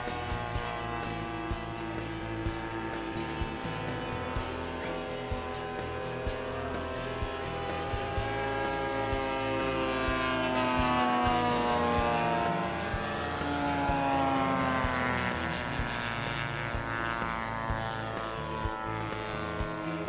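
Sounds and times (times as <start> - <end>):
model airplane engine droning: 0.0 - 20.0.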